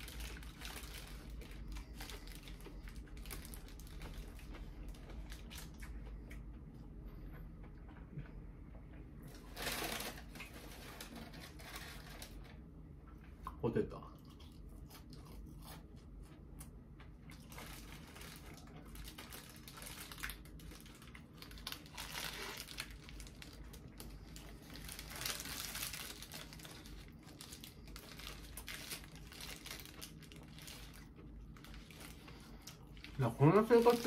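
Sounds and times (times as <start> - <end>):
paper wrapper crinkling: 0.0 - 5.9, 9.3 - 12.7, 17.3 - 34.0.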